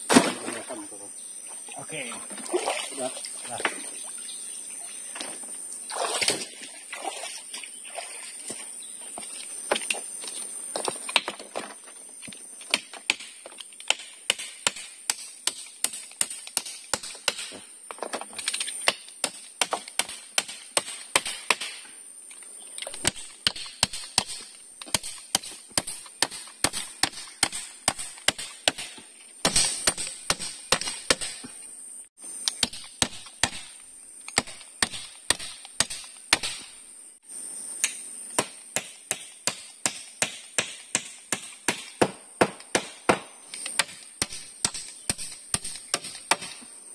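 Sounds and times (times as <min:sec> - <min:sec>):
insect drone: 0:00.0 - 0:46.9.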